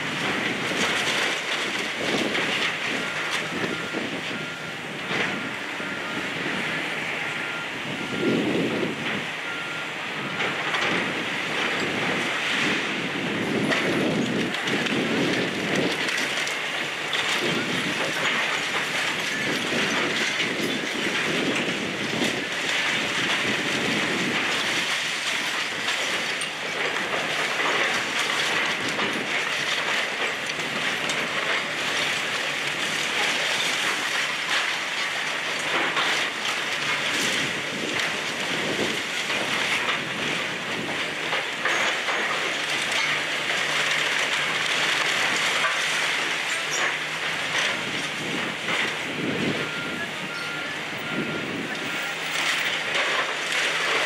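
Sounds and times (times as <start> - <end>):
diesel engines running: 0.0 - 54.0
bricks and debris clattering: 40.8 - 49.0.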